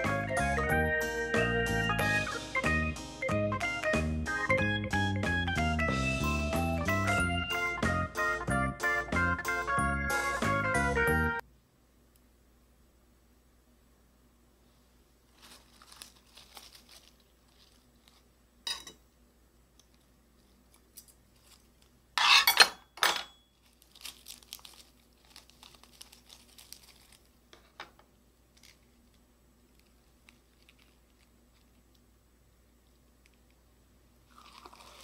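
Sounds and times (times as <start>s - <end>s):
lettuce leaves crinkling: 15.3s - 18.4s, 19.9s - 22.0s, 23.5s - 27.8s, 28.5s - 31.9s, 34.3s - 35.0s.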